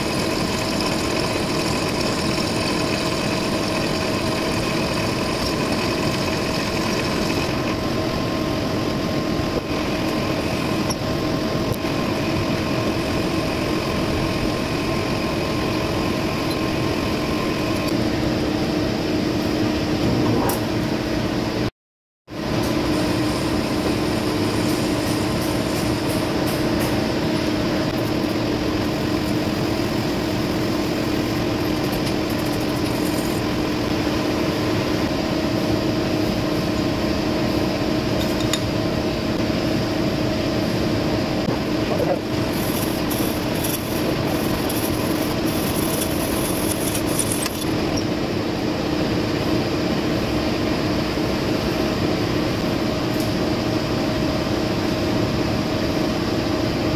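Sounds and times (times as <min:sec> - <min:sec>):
metal lathe running: 0:00.0 - 0:17.9, 0:41.6 - 0:48.1.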